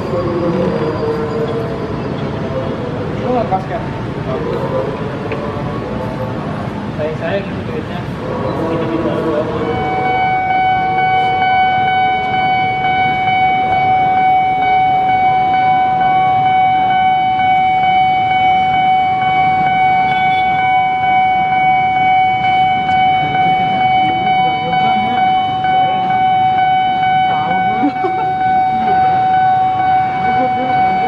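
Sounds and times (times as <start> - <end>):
level crossing alarm tone: 0.0 - 6.2, 8.1 - 31.0
street traffic: 0.0 - 31.0
car horn toots: 19.9 - 21.0.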